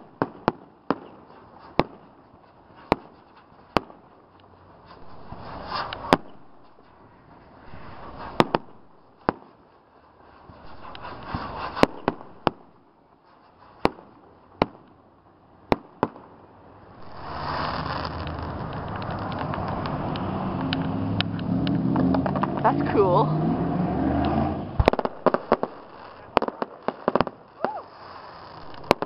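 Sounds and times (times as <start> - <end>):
fireworks bangs: 0.0 - 15.0, 15.6 - 23.2, 24.3 - 29.0
fireworks crackling and fizzing: 0.0 - 23.2, 24.7 - 29.0
steady rumbling noise: 4.2 - 13.1, 16.3 - 29.0.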